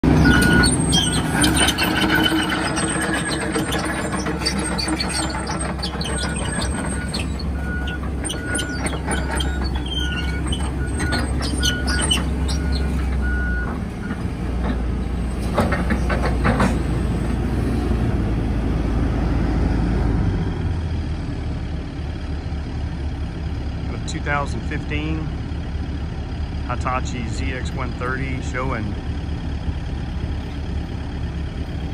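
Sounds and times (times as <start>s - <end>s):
excavator diesel engine running: 0.0s - 31.9s
travel alarm beeping: 0.2s - 1.2s
machine clanks and squeaks: 0.2s - 14.8s, 15.4s - 16.9s.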